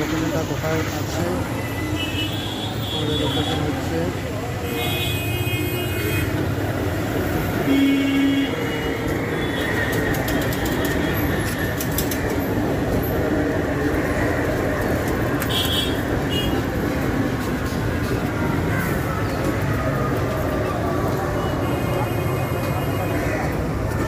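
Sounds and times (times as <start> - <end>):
street traffic: 0.0 - 24.0
trains rumbling: 6.3 - 7.7, 8.5 - 24.0.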